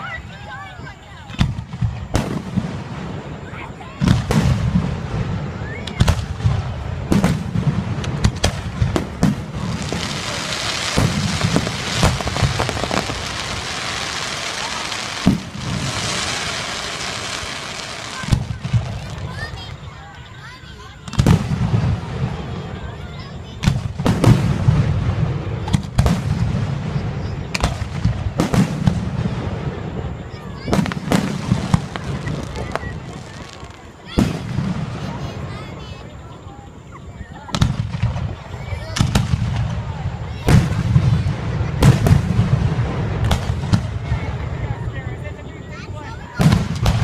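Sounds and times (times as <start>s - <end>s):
dense firework crackling: 0.0s - 47.0s
firework shells bursting: 4.0s - 19.3s.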